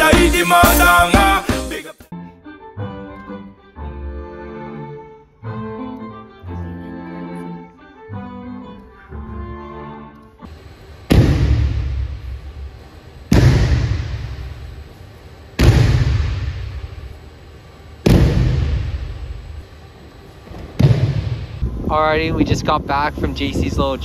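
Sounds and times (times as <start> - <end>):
heavy thuds on mats: 11.1 - 12.2, 13.3 - 14.6, 15.6 - 16.9, 18.0 - 19.2, 20.5 - 21.6.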